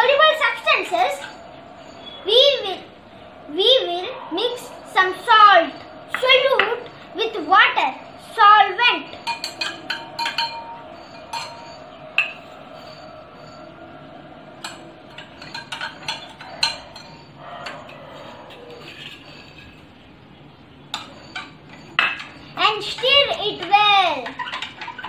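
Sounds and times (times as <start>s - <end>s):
metal spoon clinking on bowls: 9.1s - 20.1s, 20.8s - 25.0s.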